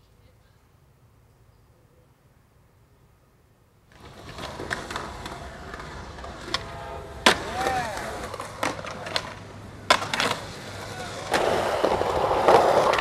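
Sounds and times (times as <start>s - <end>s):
skateboard wheels rolling on concrete: 3.1s - 13.0s
skateboard clacking on ground: 3.9s - 13.0s.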